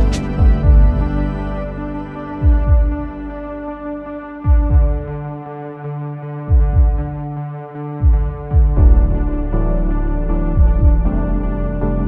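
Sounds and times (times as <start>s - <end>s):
deep bass drum hits: 0.0s - 1.4s, 2.4s - 3.2s, 4.5s - 5.2s, 8.0s - 9.6s, 10.6s - 11.2s
synthesizer chords: 0.0s - 12.0s.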